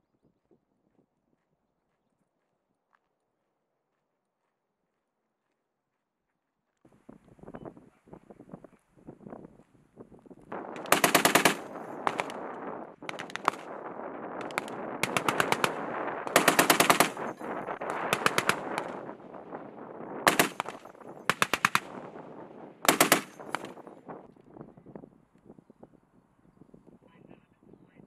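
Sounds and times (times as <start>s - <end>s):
machine gun firing bursts: 10.7s - 13.8s, 14.4s - 19.2s, 20.2s - 22.0s, 22.8s - 23.8s
gunshot echoes: 14.4s - 19.0s, 20.3s - 22.0s, 22.8s - 23.8s.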